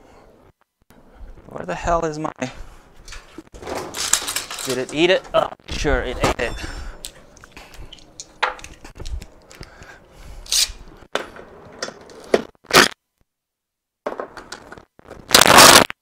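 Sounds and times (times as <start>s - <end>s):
metal parts clicking and knocking: 3.1s - 5.4s.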